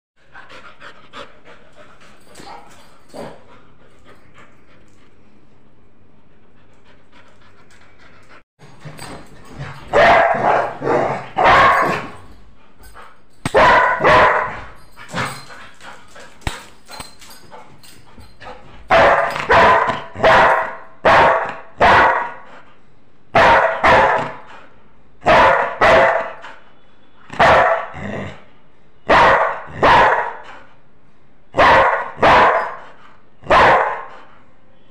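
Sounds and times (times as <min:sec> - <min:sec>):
dog barking: 0:09.9 - 0:12.2, 0:13.5 - 0:14.6, 0:18.9 - 0:22.4, 0:23.4 - 0:24.4, 0:25.2 - 0:26.4, 0:27.4 - 0:28.0, 0:29.1 - 0:30.4, 0:31.6 - 0:32.8, 0:33.5 - 0:34.1.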